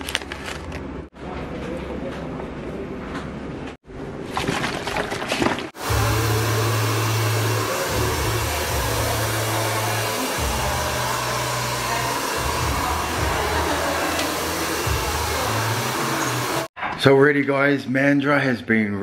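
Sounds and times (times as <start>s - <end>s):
hair dryer running: 5.8s - 16.7s.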